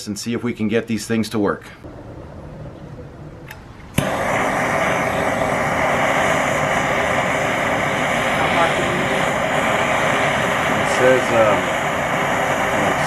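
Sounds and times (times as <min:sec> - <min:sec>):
torch igniting click: 0:03.4 - 0:13.0
propane torch hissing: 0:03.9 - 0:13.0.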